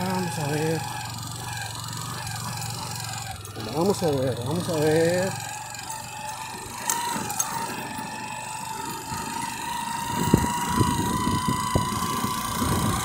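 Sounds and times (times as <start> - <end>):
small motorcycle engine whine: 0.0 - 13.0
wind rumble on microphone: 10.1 - 13.0.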